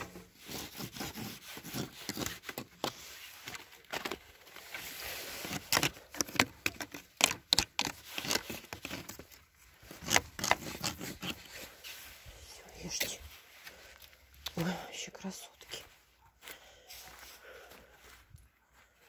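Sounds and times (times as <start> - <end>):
branches cracking and snapping: 1.7 - 11.7.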